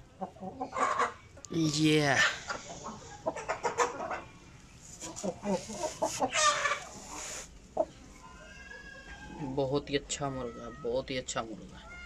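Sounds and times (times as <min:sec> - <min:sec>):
chickens clucking: 0:00.0 - 0:01.5, 0:02.1 - 0:09.7.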